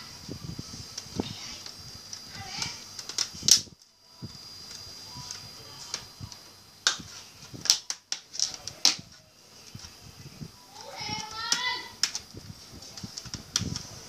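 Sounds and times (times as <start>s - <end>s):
plastic clips snapping: 7.6s - 9.0s, 11.5s - 12.3s.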